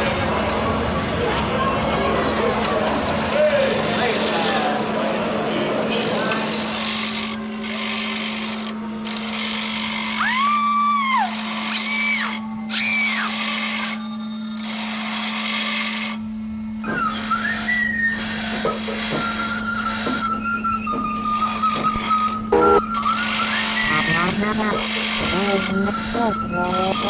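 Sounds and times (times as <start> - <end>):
steady low hum: 0.0 - 27.0
whistle-like glides: 10.2 - 15.1, 16.8 - 27.0
high steady tone: 11.4 - 27.0.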